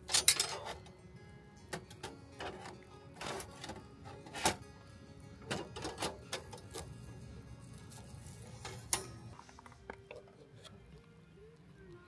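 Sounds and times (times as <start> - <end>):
metal grill grate clacking: 0.0 - 0.9, 1.7 - 4.6, 5.4 - 7.1, 7.7 - 10.3.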